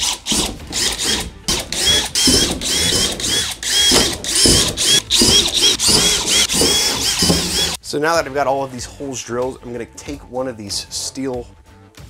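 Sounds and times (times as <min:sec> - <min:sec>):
cordless drill boring holes: 0:00.0 - 0:07.8.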